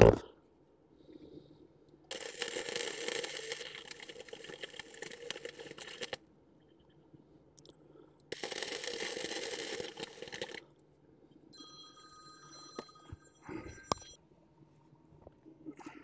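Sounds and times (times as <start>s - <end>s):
welding arc crackling and hissing: 2.1s - 6.2s, 8.4s - 10.6s
faint steady high tone: 11.2s - 14.3s.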